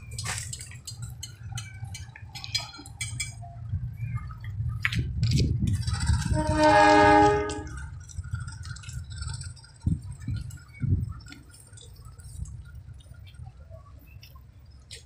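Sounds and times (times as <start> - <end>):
low train rumble: 0.0 - 15.0
train ringing note: 6.2 - 8.0.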